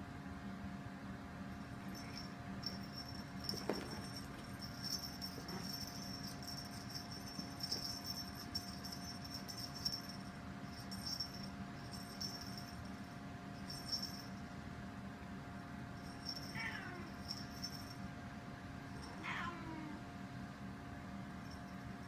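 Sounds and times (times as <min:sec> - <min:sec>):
cat collar jingling: 0:01.8 - 0:13.0, 0:16.0 - 0:18.0.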